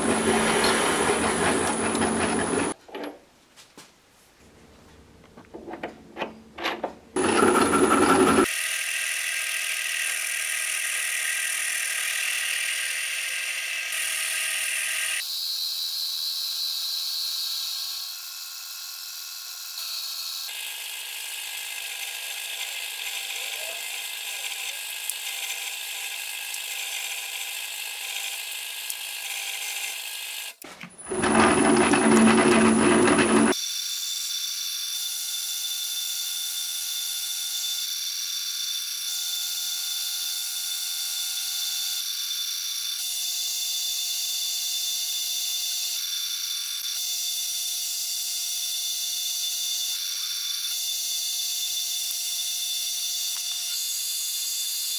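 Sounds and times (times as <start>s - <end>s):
metal lathe cutting steel: 0.0s - 2.8s, 7.2s - 17.9s, 18.6s - 30.1s, 31.0s - 33.6s.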